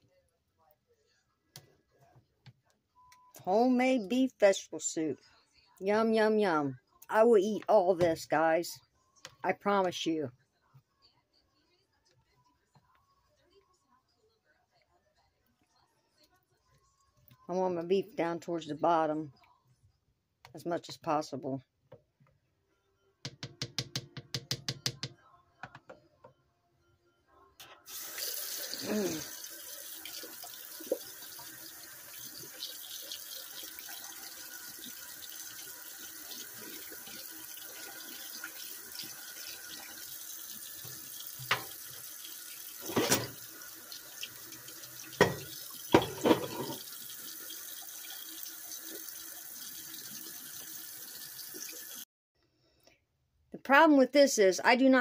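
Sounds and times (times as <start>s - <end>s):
tap running into a sink: 40.8s - 42.0s, 42.8s - 43.4s, 45.1s - 46.9s.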